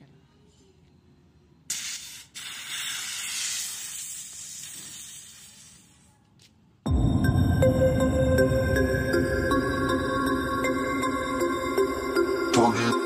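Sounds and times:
aerosol can spraying hiss: 0:01.7 - 0:06.1.

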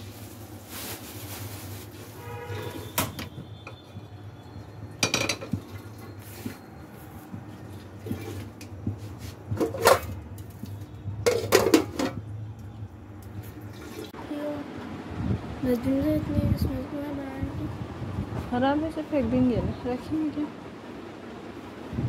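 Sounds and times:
metal pots and lids clanking: 0:05.0 - 0:06.1, 0:09.5 - 0:10.5, 0:11.2 - 0:12.2.

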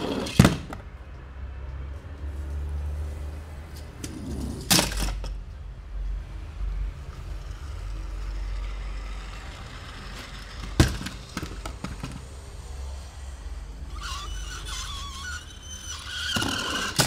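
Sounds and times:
sharp clacks of toy cars: 0:04.0 - 0:05.4, 0:07.1 - 0:12.4, 0:13.9 - 0:17.0.

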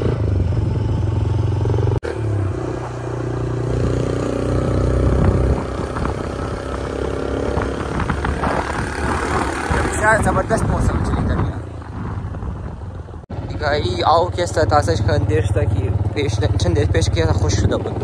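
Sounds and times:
vehicle engine running: 0:11.2 - 0:18.0.

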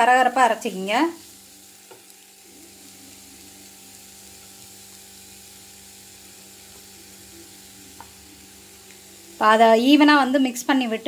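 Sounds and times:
beetroot sizzling in a pan: 0:00.0 - 0:11.0.

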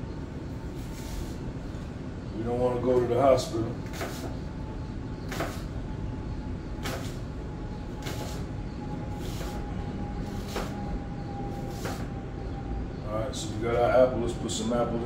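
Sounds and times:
steady low hum: 0:00.0 - 0:15.0
knife cutting apple on board: 0:03.9 - 0:04.3, 0:10.3 - 0:10.7.

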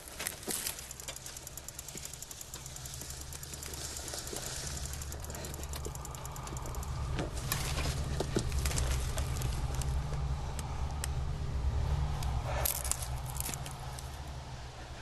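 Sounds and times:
crackling and rustling: 0:00.0 - 0:11.1
low steady rumble: 0:00.0 - 0:15.0.

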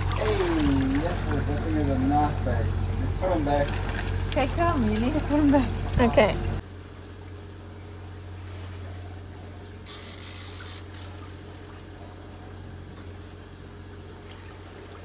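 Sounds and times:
steady low hum: 0:00.0 - 0:15.0
fishing reel gears rattling: 0:03.6 - 0:06.6, 0:09.9 - 0:11.2.

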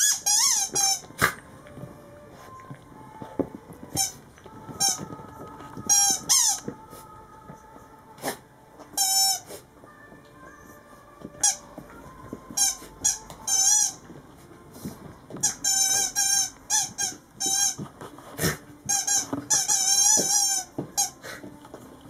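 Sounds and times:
squeaky toy squeaking: 0:00.0 - 0:01.3, 0:03.9 - 0:04.2, 0:05.8 - 0:06.7, 0:08.9 - 0:09.5, 0:12.5 - 0:14.1, 0:15.4 - 0:17.8, 0:18.9 - 0:21.3
dog chewing toy: 0:00.0 - 0:07.7, 0:08.3 - 0:22.0.

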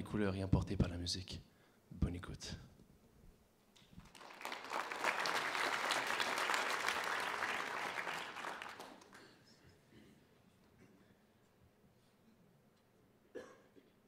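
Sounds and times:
audience applauding: 0:04.0 - 0:09.4.

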